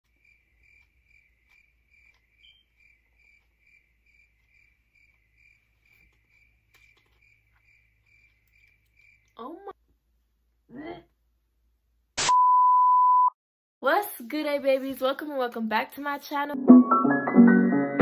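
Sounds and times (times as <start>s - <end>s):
cricket chirping: 0.1s - 9.6s.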